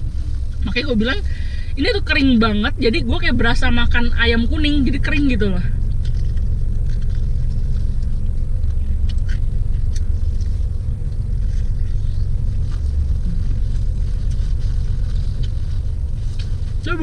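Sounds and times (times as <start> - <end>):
car engine idling: 0.0 - 17.0
crunchy chewing: 5.7 - 16.8.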